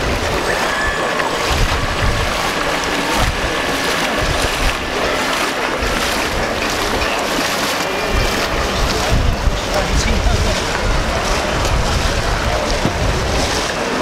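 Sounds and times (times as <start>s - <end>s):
faint high whine: 0.0s - 8.4s
model boat motor and wake: 0.0s - 14.0s
wind rumbling on microphone: 0.0s - 14.0s.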